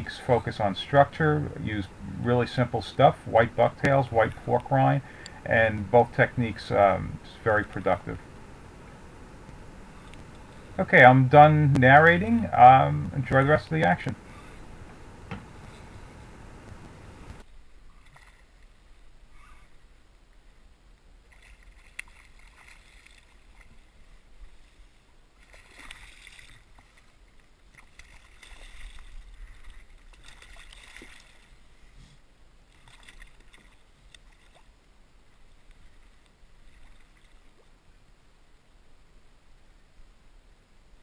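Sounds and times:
water lapping against a kayak: 0.0 - 38.2
fish thrashing and splashing: 21.3 - 24.0, 25.4 - 31.6, 32.8 - 34.7.

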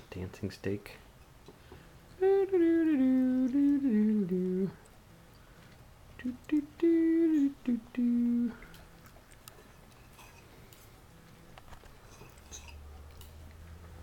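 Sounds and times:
faint low hum: 0.0 - 14.0
person humming: 2.2 - 4.9, 6.2 - 8.8.

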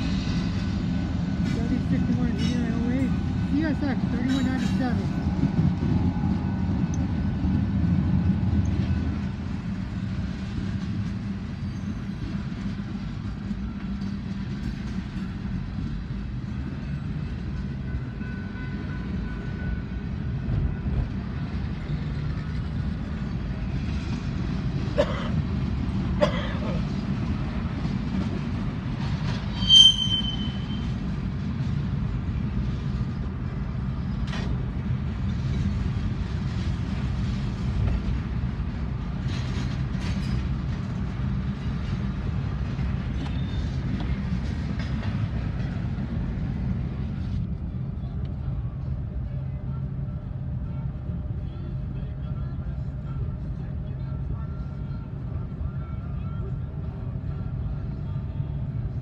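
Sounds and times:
train wheels rumbling on rail: 0.0 - 59.0
high squeal: 29.5 - 31.0.

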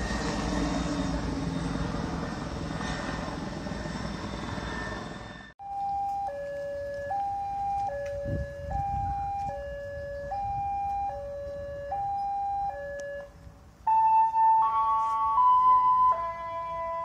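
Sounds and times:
level crossing two-tone alarm: 5.6 - 13.3, 13.9 - 17.0.

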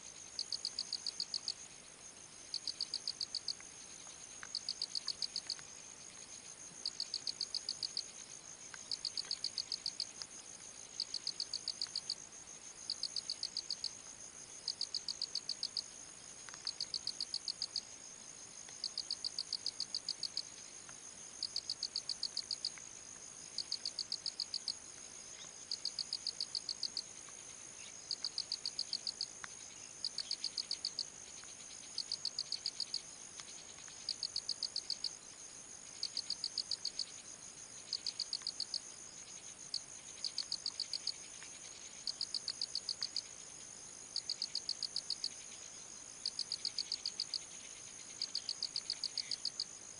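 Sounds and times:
insect high-pitched buzz: 0.1 - 49.9
insect pulsed chirps: 44.1 - 49.7.

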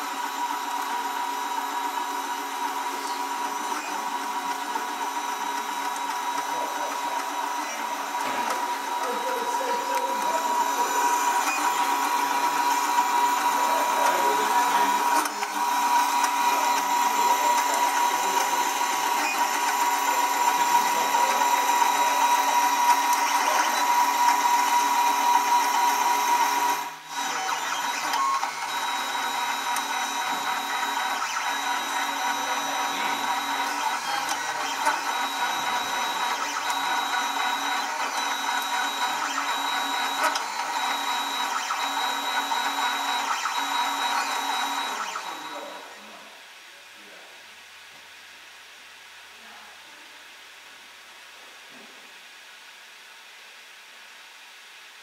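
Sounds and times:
three d printer motors whining: 0.0 - 46.0.

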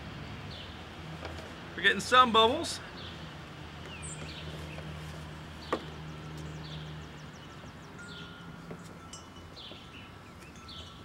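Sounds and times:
bird chirping: 2.8 - 11.0.

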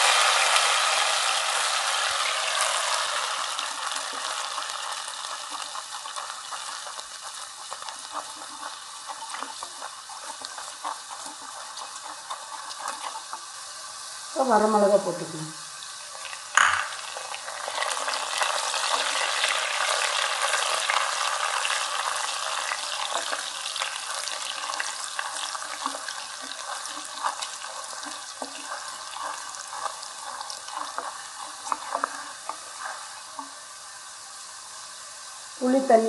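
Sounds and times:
food sizzling in hot oil: 0.0 - 36.0
spatula tapping and scraping pan: 25.8 - 33.5.

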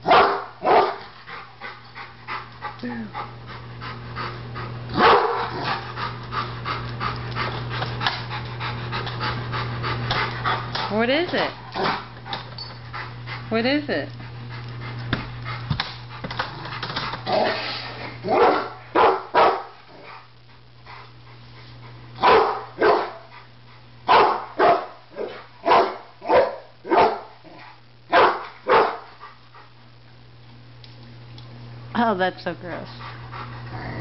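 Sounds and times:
dog barking: 0.0 - 1.0, 5.0 - 5.7, 18.3 - 19.8, 22.2 - 23.3, 24.1 - 27.4, 28.1 - 29.1.

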